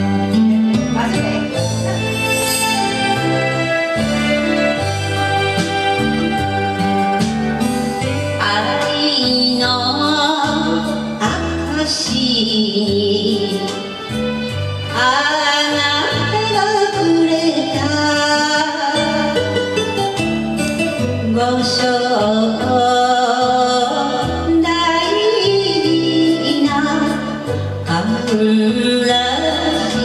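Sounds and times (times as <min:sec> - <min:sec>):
karaoke backing track: 0:00.0 - 0:30.0
woman singing into a microphone: 0:08.0 - 0:14.2, 0:14.9 - 0:19.5, 0:21.0 - 0:30.0.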